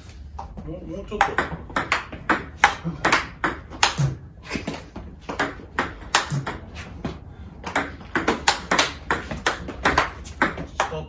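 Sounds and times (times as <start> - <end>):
table tennis ball clicking: 1.2 - 4.1, 7.7 - 11.0.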